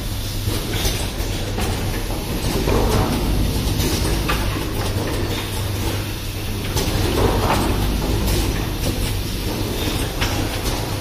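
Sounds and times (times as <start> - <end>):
machine humming: 0.0 - 11.0
mechanical clicks and clatters: 0.3 - 11.0.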